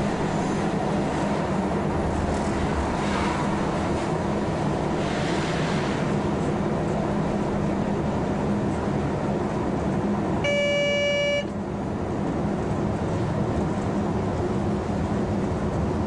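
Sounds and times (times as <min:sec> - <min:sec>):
locomotive running noise: 0:00.0 - 0:16.0
high horn tone: 0:10.4 - 0:11.5.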